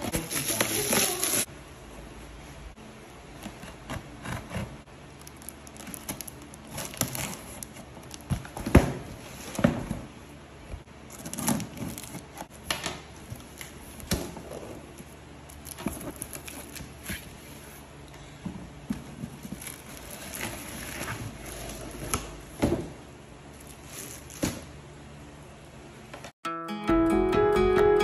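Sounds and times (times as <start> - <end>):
packing tape being cut: 0.0 - 1.5, 5.2 - 8.2.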